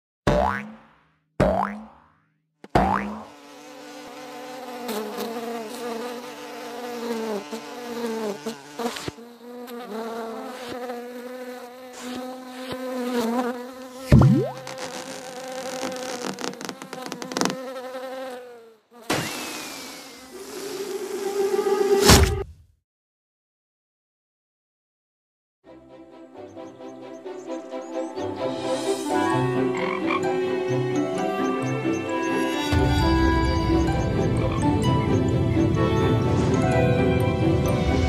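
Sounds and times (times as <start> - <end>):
fly buzzing: 0.4 - 0.7, 1.5 - 1.8, 2.8 - 22.1, 28.8 - 35.7.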